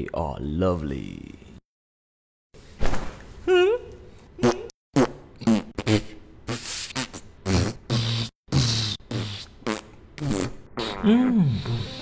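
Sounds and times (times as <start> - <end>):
person making rhythmic vocal sounds: 3.4 - 4.7, 5.4 - 12.0.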